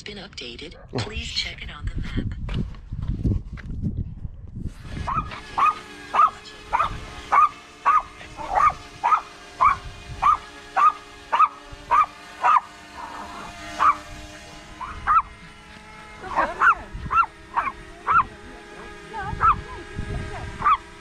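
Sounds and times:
drone propellers whining: 0:04.7 - 0:21.0
dog barking: 0:05.1 - 0:14.0, 0:14.8 - 0:15.3, 0:16.4 - 0:18.3, 0:19.4 - 0:19.6, 0:20.6 - 0:20.8.

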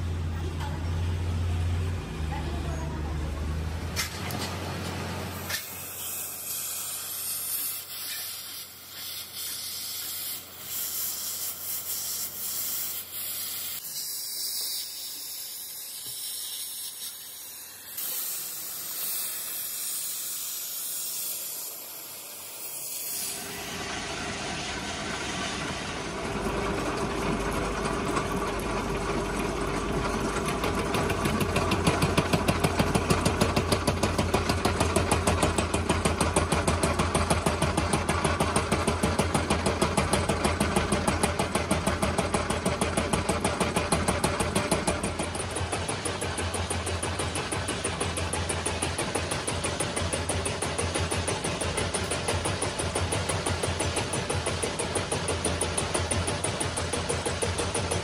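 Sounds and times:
gas torch hissing: 0:05.3 - 0:25.9.

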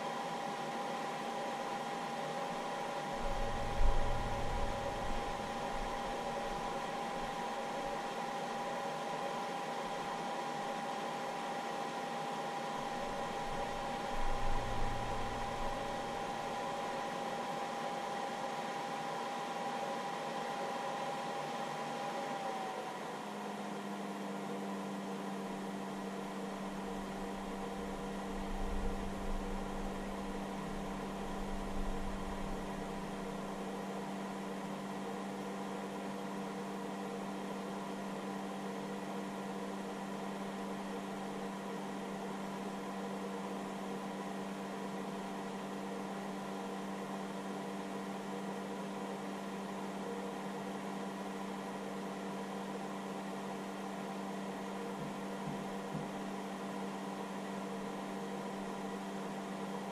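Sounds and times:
cooling fan whining: 0:00.0 - 0:59.9
low steady hum: 0:03.1 - 0:08.0, 0:12.8 - 0:17.0, 0:26.2 - 0:34.4.

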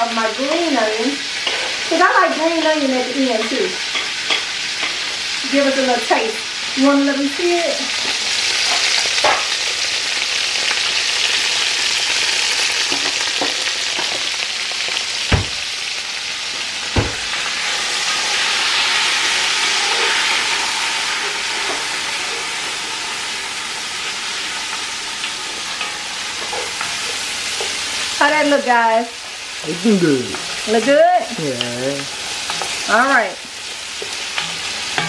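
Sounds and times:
food sizzling in oil: 0:00.0 - 0:35.0
sharp knocks: 0:15.3 - 0:15.6, 0:17.0 - 0:17.3.

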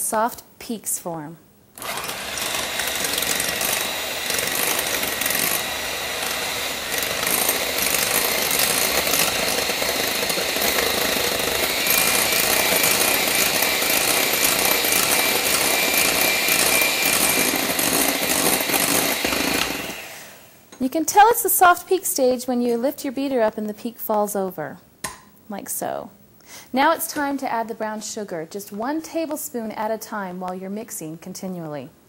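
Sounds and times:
electric hand mixer whining: 0:01.8 - 0:20.6.

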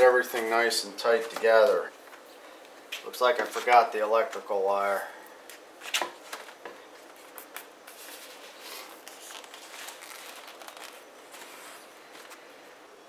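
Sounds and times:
cables rustling and clicking: 0:05.5 - 0:12.4.

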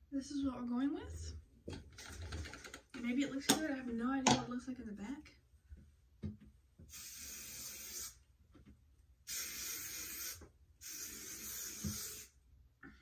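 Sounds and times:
aerosol spray hissing: 0:06.9 - 0:08.2, 0:09.3 - 0:12.3.

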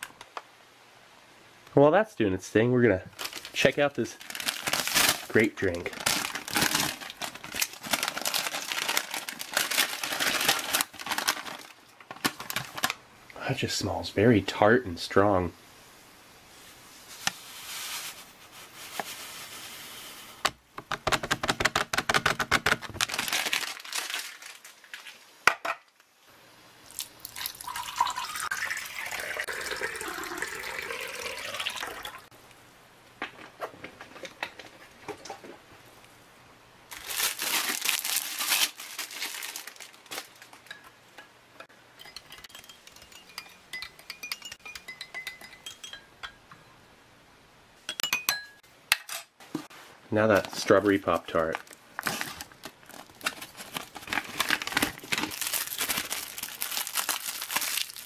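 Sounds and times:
packet rustling: 0:03.1 - 0:13.0, 0:21.1 - 0:25.2, 0:36.9 - 0:40.7, 0:50.2 - 0:58.0
water pouring into glass: 0:27.2 - 0:32.3
spoon stirring in glass: 0:42.0 - 0:46.4.

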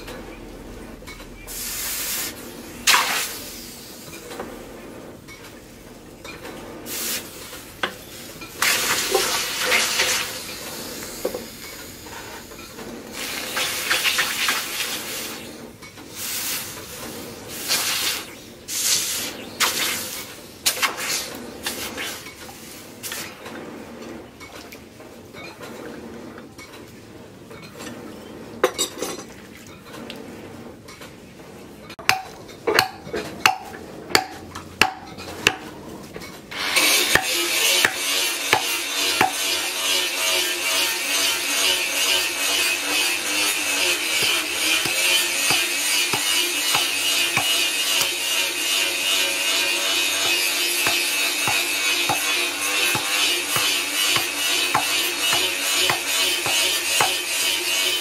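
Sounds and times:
hot metal sizzling in water: 0:01.5 - 0:04.2, 0:06.9 - 0:15.5, 0:16.1 - 0:16.9, 0:17.5 - 0:23.3, 0:36.5 - 0:58.0.

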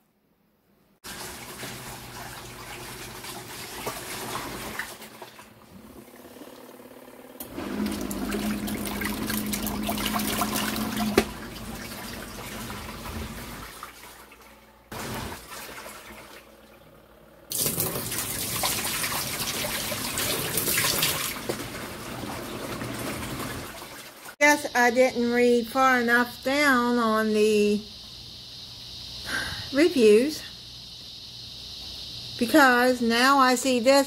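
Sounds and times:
water rushing into a sink: 0:01.0 - 0:06.6, 0:07.4 - 0:24.4
washing machine motor humming: 0:01.1 - 0:27.7.

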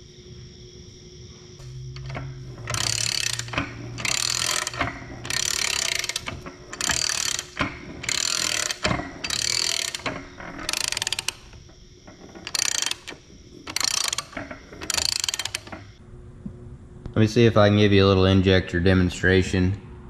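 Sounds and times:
hand ratchet clicking: 0:02.0 - 0:16.0.

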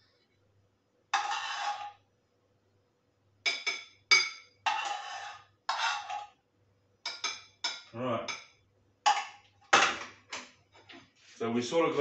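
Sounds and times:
spoon scraping a plate: 0:01.2 - 0:02.0, 0:03.5 - 0:06.4
spoon clinking against dish: 0:03.5 - 0:04.6, 0:07.1 - 0:09.4.

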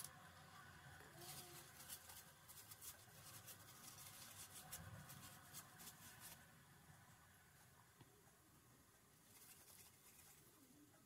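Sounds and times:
cloth rubbing on metal: 0:01.2 - 0:06.5, 0:09.2 - 0:10.6.

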